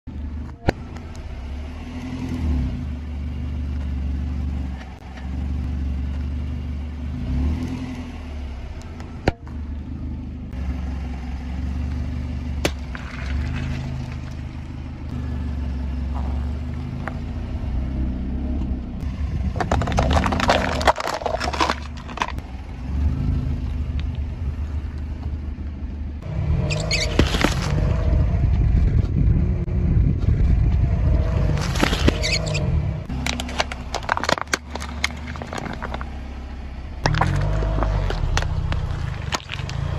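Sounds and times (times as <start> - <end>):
car engine running low: 0.0 - 39.9
tyre crushing objects: 12.6 - 14.7, 19.4 - 22.4, 26.7 - 28.0, 31.4 - 36.2, 37.0 - 39.9
crackling crunches: 12.6 - 15.2, 19.0 - 22.7, 26.6 - 28.1, 31.2 - 39.9.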